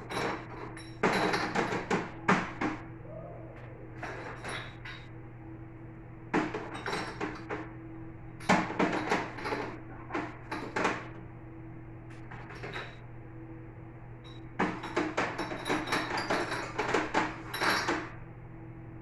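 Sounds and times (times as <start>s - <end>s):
dishes clinking and knocking: 0.0s - 2.8s, 8.5s - 11.1s, 14.6s - 18.1s
steady low hum: 0.0s - 19.0s.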